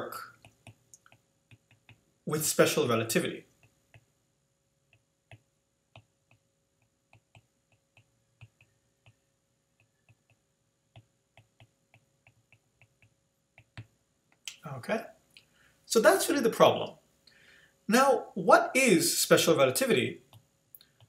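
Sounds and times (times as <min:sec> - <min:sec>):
stylus tapping on screen: 0:00.2 - 0:02.0, 0:04.9 - 0:14.5.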